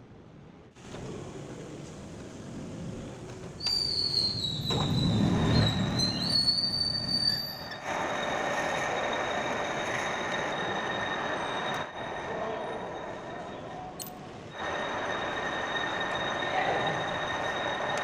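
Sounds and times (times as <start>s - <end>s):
lathe squealing whine: 3.6s - 13.8s, 14.5s - 18.0s.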